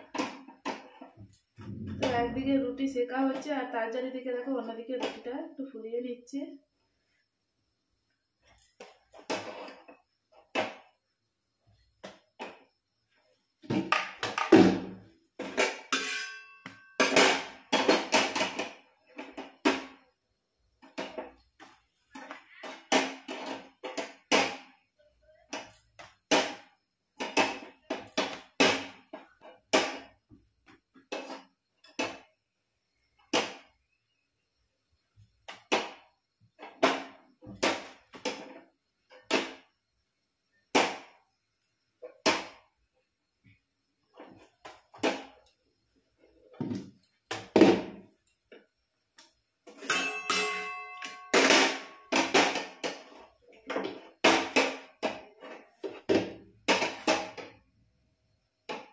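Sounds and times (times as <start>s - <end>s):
metal utensil clattering on pan: 15.6s - 18.4s, 49.8s - 52.6s.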